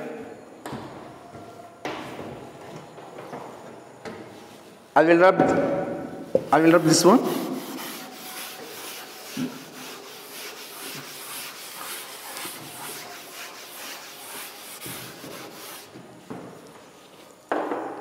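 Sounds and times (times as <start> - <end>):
eraser scrubbing a blackboard: 6.6 - 16.0.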